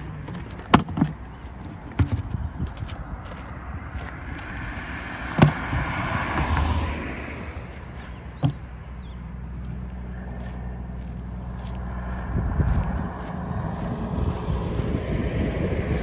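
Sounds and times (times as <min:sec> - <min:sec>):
car passing: 0:00.0 - 0:16.0
low steady engine hum: 0:00.0 - 0:16.0
traffic cones knocking on asphalt: 0:00.2 - 0:02.7, 0:05.3 - 0:06.8, 0:08.4 - 0:08.7.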